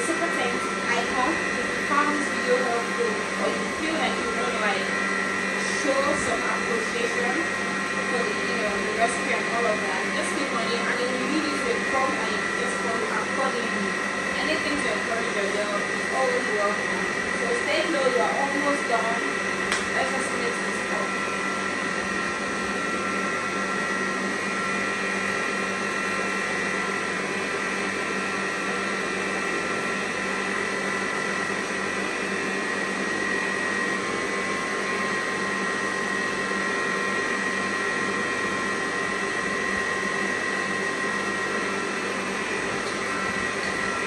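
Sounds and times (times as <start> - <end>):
stand mixer beating batter: 0.0 - 44.0.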